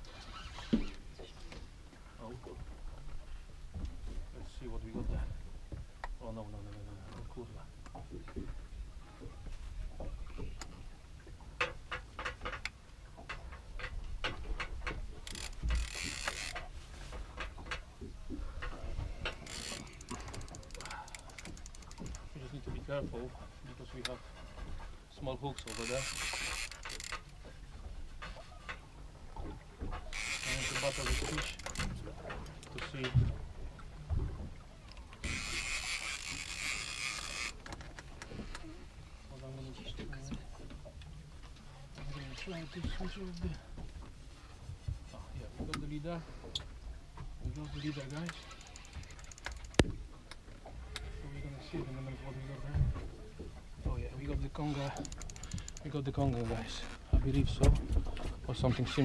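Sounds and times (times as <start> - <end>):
fishing reel clicking: 15.2 - 16.7, 19.3 - 22.3, 25.5 - 27.4, 30.1 - 32.8, 34.9 - 38.6, 47.5 - 49.9, 54.5 - 56.1.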